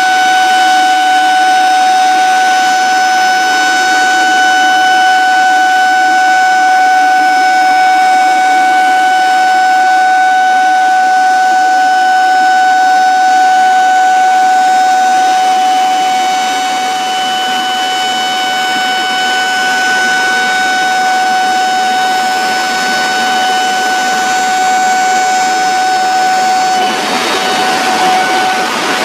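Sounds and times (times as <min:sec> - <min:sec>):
warning siren steady tone: 0:00.0 - 0:29.0
rushing water: 0:21.8 - 0:29.0.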